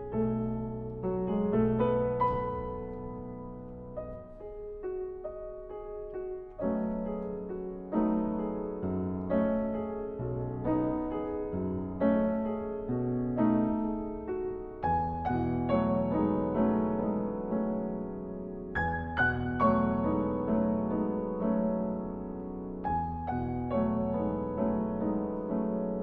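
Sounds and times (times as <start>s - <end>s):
solo piano: 0.0s - 26.0s.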